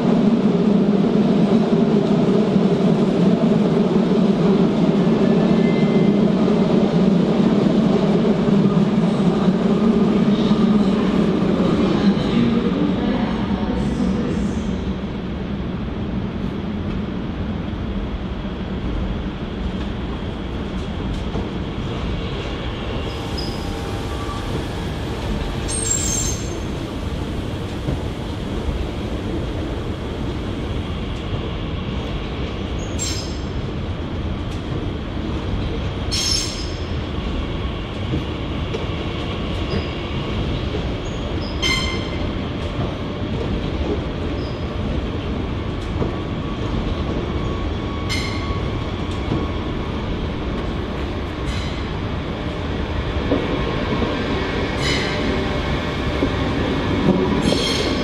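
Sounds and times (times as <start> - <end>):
train rumbling on rails: 0.0 - 58.0.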